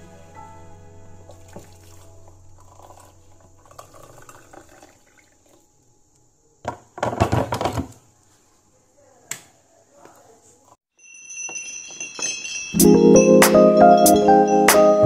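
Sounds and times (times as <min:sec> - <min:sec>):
water pouring into a mug: 0:01.3 - 0:05.7
kettle clattering down: 0:06.7 - 0:08.0.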